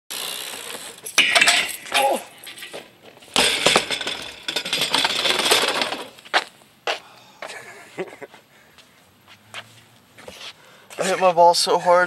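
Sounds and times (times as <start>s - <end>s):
bike grinding along rail: 0.1s - 6.3s
bike clanking on metal rail: 0.5s - 6.2s.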